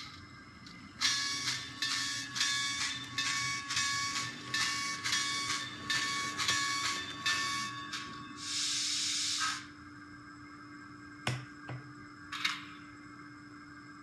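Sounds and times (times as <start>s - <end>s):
faint steady hum: 0.0s - 14.0s
steam hiss: 8.4s - 9.7s.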